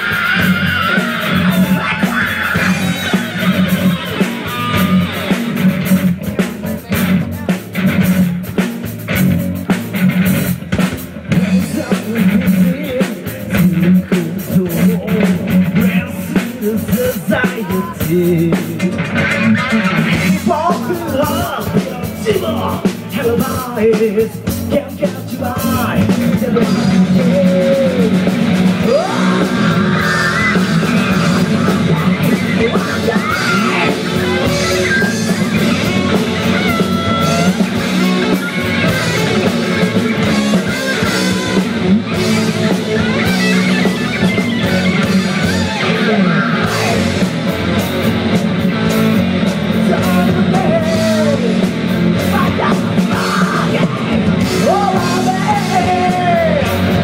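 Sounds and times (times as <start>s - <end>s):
gliding guitar lead lines: 0.0s - 11.6s, 26.6s - 53.1s
distorted electric guitars: 0.0s - 57.0s
drums: 0.0s - 57.0s.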